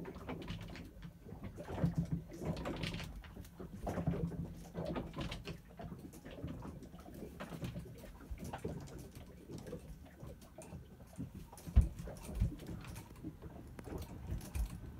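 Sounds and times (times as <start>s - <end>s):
wood creaks and clicks: 0.0s - 6.8s, 10.6s - 14.9s.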